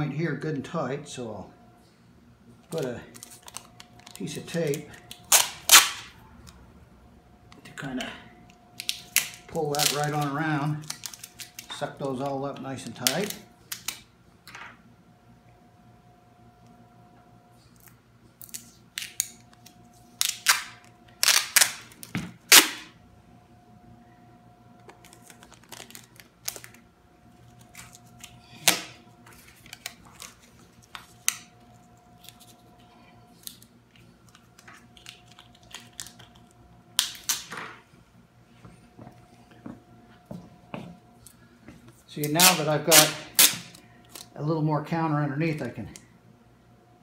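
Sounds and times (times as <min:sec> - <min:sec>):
packing tape ripping off roll: 0:02.7 - 0:06.1, 0:08.8 - 0:12.2, 0:18.4 - 0:22.9, 0:24.9 - 0:26.8, 0:27.5 - 0:31.5, 0:37.0 - 0:37.6, 0:42.2 - 0:44.3.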